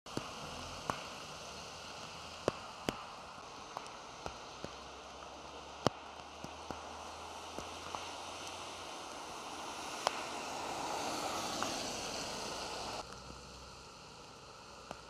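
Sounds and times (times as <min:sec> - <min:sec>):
steady rain falling: 0:00.1 - 0:15.0.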